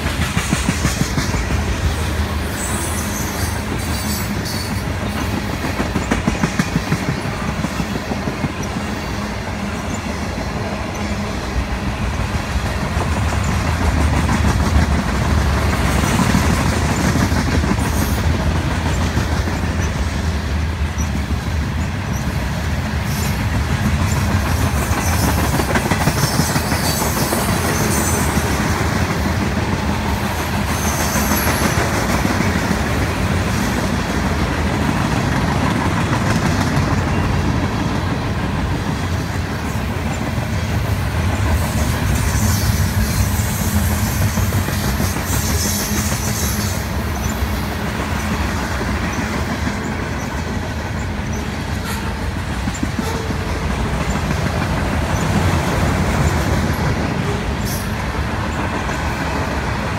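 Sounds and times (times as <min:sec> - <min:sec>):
train wheels rumbling on rails: 0:00.0 - 0:59.9
wheels clicking over rail joints: 0:00.0 - 0:59.9.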